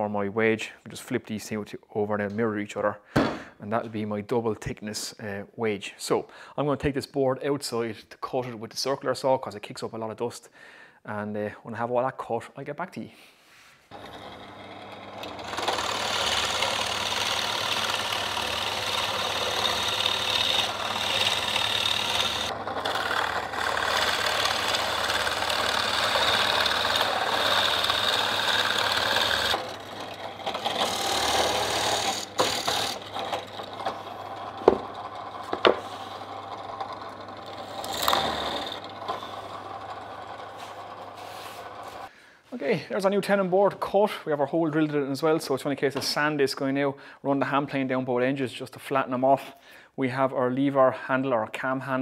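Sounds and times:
drill bit boring through plywood: 0:13.9 - 0:42.1.

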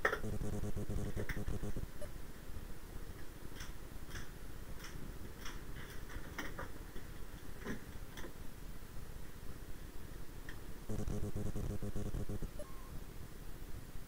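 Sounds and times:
steady low rumble: 0:00.2 - 0:02.1, 0:10.8 - 0:12.7.

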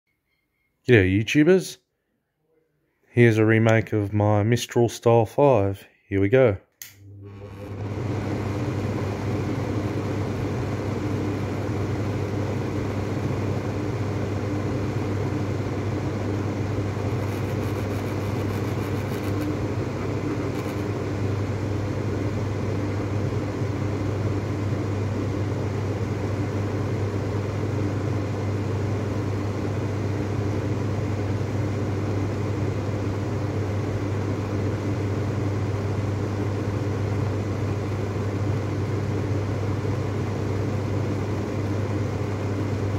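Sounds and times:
low motor hum: 0:06.8 - 0:27.7
exhaust fan air rush: 0:06.8 - 0:42.9.

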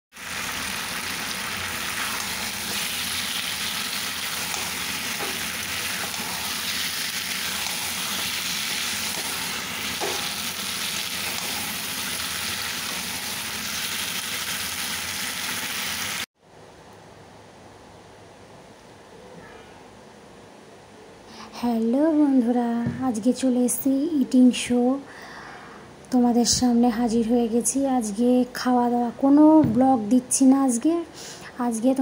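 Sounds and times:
chicken sizzling in a pan: 0:00.1 - 0:16.3.

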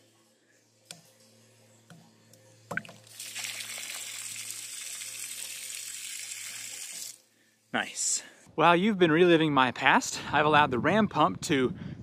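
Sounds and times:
water gushing onto ground: 0:03.0 - 0:07.2.

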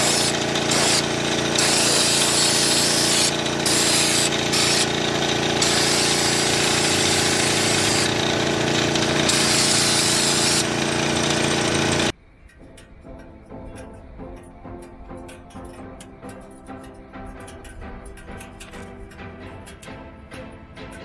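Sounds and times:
spray gun hissing bursts: 0:00.0 - 0:12.1
mechanical hum: 0:00.0 - 0:21.0.

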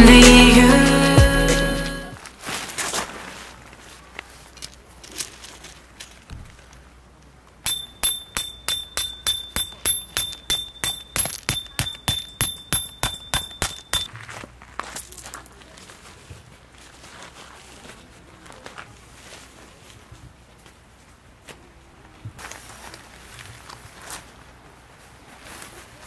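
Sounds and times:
sharp metallic strikes ringing: 0:07.7 - 0:14.1.

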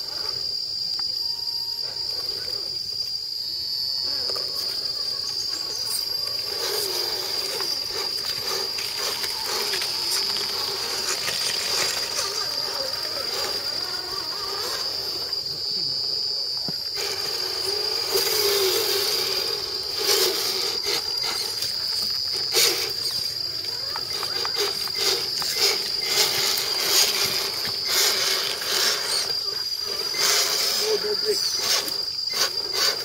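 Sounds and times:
high-pitched insect drone: 0:00.0 - 0:33.0
small electric motors whining: 0:00.0 - 0:33.0
clicks over dry leaves: 0:06.4 - 0:13.9.

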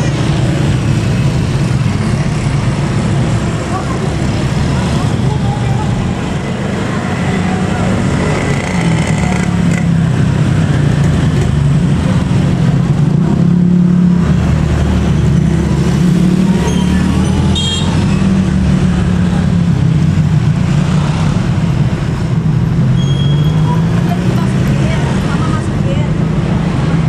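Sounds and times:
vehicle engines rumbling: 0:00.0 - 0:27.0.

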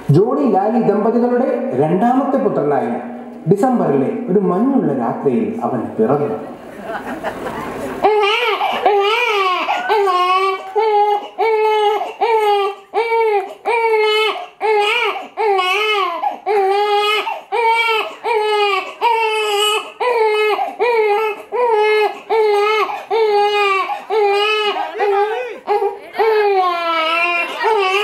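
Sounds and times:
newborn baby crying: 0:08.0 - 0:28.0.

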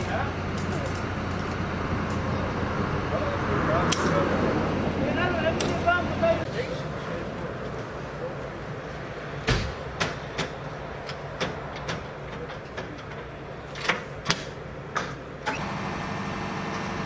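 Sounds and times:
tools clanking on metal: 0:00.0 - 0:02.3
heavy engine running: 0:00.0 - 0:08.8, 0:15.4 - 0:17.0.

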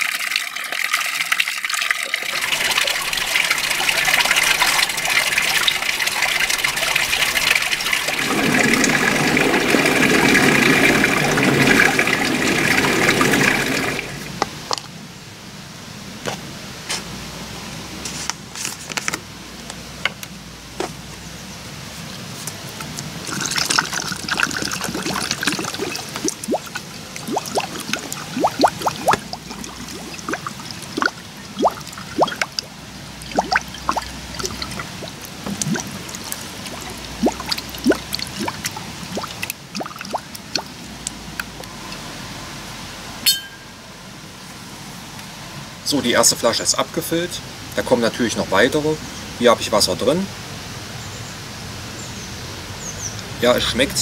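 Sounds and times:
water pouring into bottle: 0:00.0 - 0:14.4, 0:22.8 - 0:41.8.

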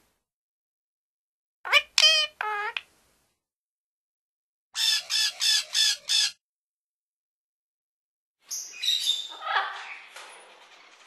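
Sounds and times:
parrots squawking: 0:01.7 - 0:02.8, 0:04.8 - 0:06.4, 0:09.0 - 0:10.0
parrot calls and chatter: 0:01.7 - 0:02.9, 0:04.8 - 0:06.4, 0:08.5 - 0:11.0.

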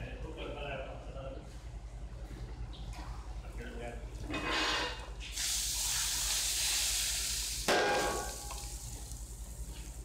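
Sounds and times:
hot oil sizzling on spices: 0:05.3 - 0:10.0.

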